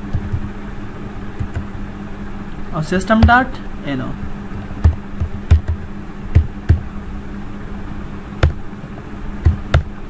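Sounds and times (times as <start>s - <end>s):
keyboard keys clicking: 0.0s - 0.5s, 1.4s - 1.7s, 4.8s - 6.8s
low electrical hum: 0.0s - 10.0s.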